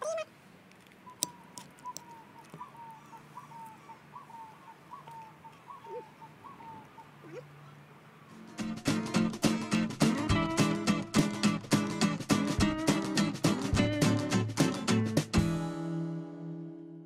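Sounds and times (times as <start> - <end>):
bird calling: 0.9 - 7.8.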